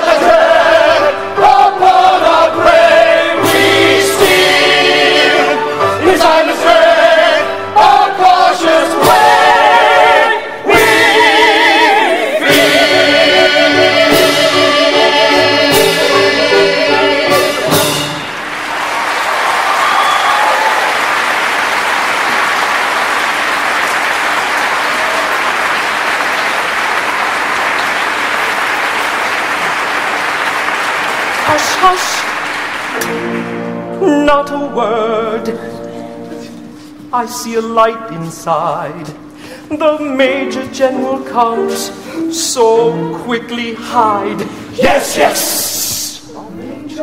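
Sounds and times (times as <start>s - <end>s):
chorus singing: 0.0s - 20.3s, 40.0s - 46.3s
audience applauding: 18.2s - 33.5s.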